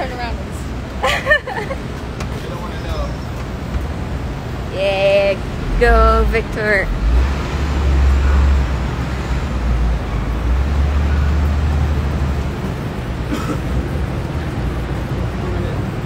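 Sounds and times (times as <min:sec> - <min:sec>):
road traffic: 0:00.0 - 0:16.0
heavy low rumble: 0:03.4 - 0:16.0.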